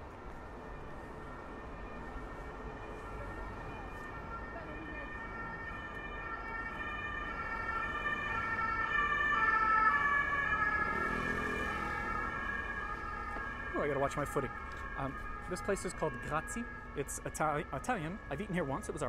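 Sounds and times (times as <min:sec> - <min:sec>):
street traffic hum: 0:00.0 - 0:19.0
two-tone emergency siren: 0:00.0 - 0:19.0.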